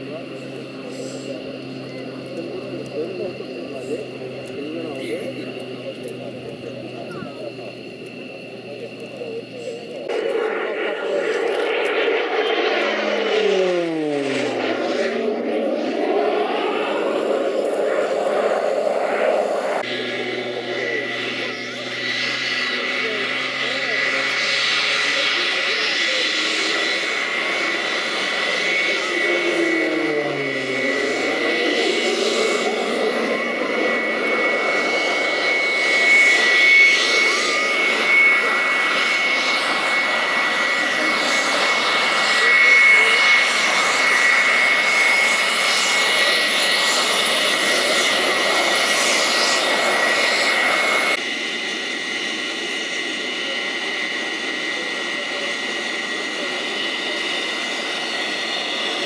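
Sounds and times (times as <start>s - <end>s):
jet engines whining: 0.0s - 59.0s
lower tone sliding down: 10.1s - 25.8s.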